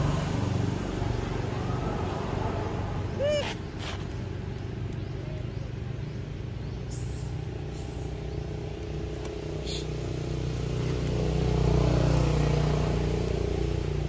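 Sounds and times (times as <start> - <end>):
vehicle engine running: 4.0 - 14.0.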